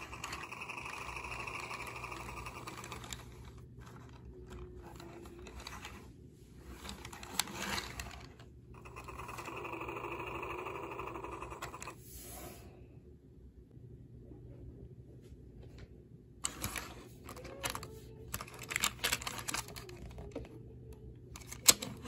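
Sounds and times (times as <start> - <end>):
toy electronic engine sound: 0.0 - 3.4, 6.9 - 12.0
plastic toy clicks and knocks: 0.0 - 6.0, 16.4 - 20.5, 21.4 - 22.0.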